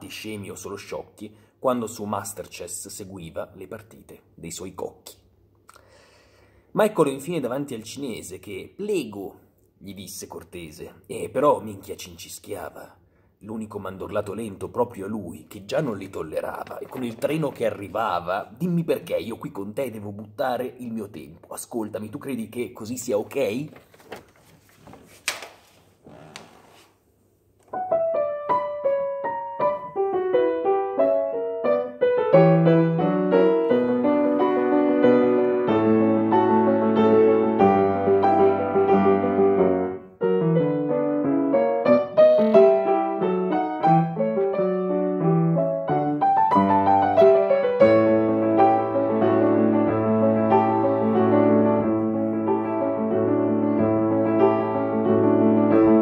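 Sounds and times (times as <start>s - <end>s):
solo piano playing: 27.7s - 56.0s.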